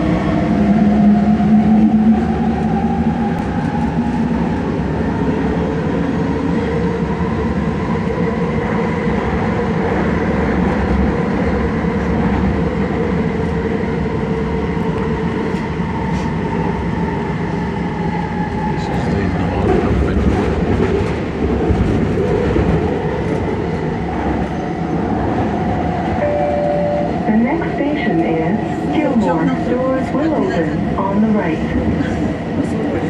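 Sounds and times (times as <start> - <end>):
metro train rumbling: 0.0 - 33.0
train whining tone: 26.0 - 32.2.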